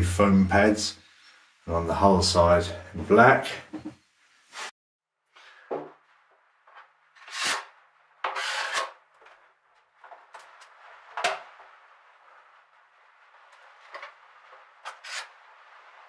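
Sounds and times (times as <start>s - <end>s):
spreader scraping adhesive on wood: 14.8s - 15.4s.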